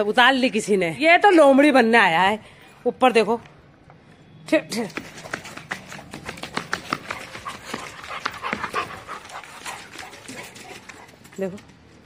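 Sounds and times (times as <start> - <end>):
dog panting: 5.0 - 11.3.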